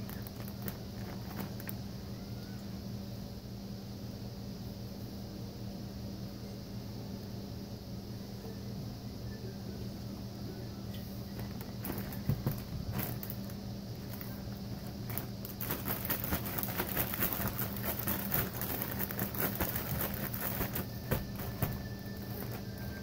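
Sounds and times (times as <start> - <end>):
plastic bags crinkling: 0.0 - 1.8, 11.3 - 23.0
steady low hum: 0.0 - 23.0.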